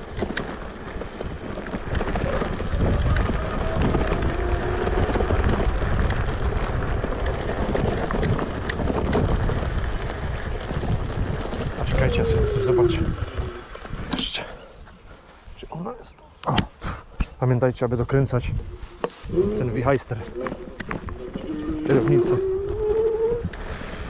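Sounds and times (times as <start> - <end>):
scooter clicks and rattles: 0.0 - 11.8
wind buffeting microphone: 0.0 - 16.0, 16.6 - 24.0.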